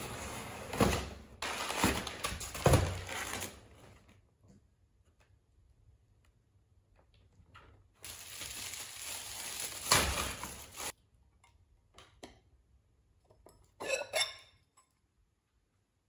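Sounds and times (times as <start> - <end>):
paper packing rustling: 0.0 - 4.0, 8.0 - 10.9
stoneware bowls clinking: 13.5 - 15.0.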